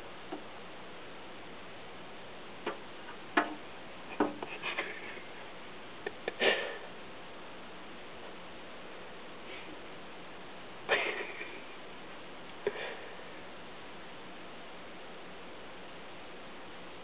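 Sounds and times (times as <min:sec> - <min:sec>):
cat tapping on window glass: 0:03.4 - 0:03.6, 0:04.2 - 0:04.5.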